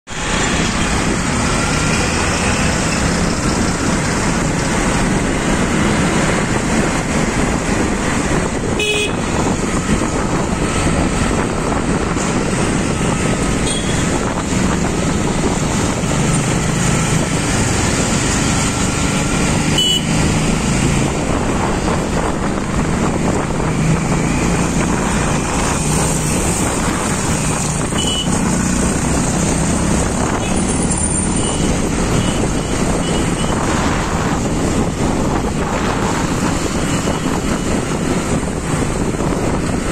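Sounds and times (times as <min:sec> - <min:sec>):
motorbike engine and road noise: 0:00.1 - 0:39.9
vehicle horn: 0:08.8 - 0:09.3, 0:13.6 - 0:14.1, 0:19.8 - 0:20.1, 0:28.0 - 0:28.4.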